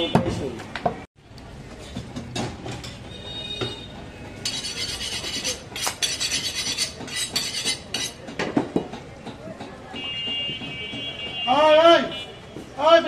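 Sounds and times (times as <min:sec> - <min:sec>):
metal tools clinking and scraping: 0:04.4 - 0:08.3.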